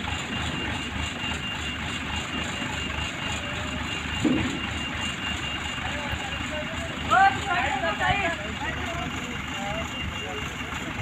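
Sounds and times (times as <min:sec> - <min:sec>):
crane engine running: 0:00.0 - 0:11.0.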